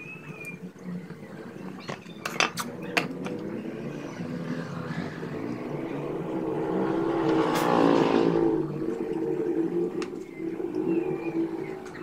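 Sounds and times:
passing vehicle engine: 0:02.6 - 0:12.0.

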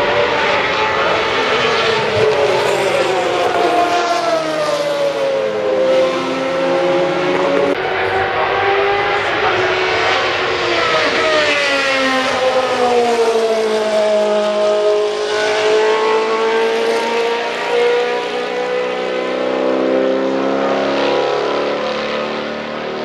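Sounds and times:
racing car engines passing: 0:00.0 - 0:23.0.

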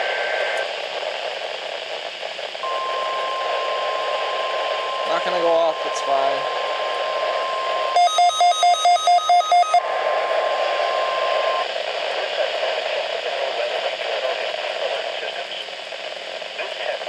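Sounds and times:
receiver hiss: 0:00.0 - 0:17.0
radio alert tone: 0:02.6 - 0:11.6.

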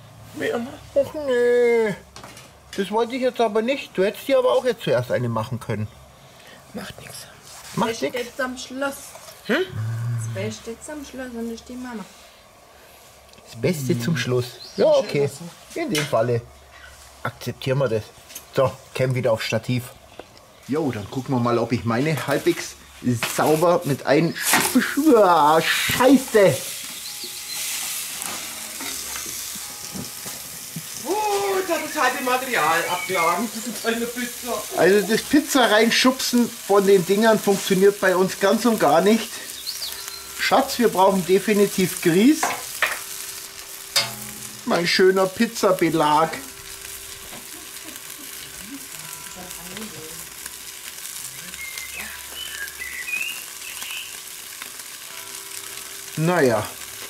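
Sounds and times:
pizza toppings sizzling on stone: 0:00.0 - 0:57.0
short high chirps: 0:27.0 - 0:27.9.

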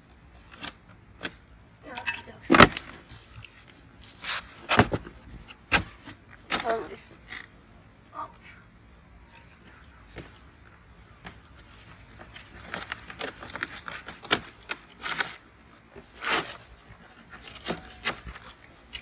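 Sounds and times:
scissors cutting packing tape: 0:12.6 - 0:15.4.

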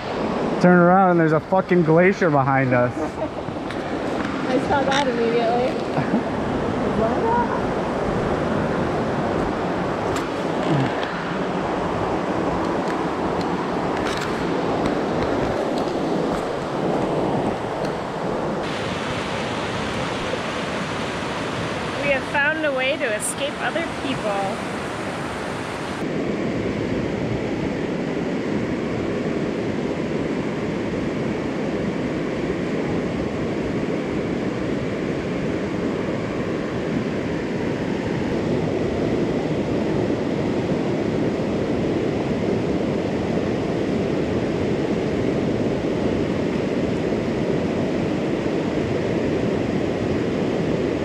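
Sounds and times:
river rushing over rapids: 0:02.7 - 0:26.2.

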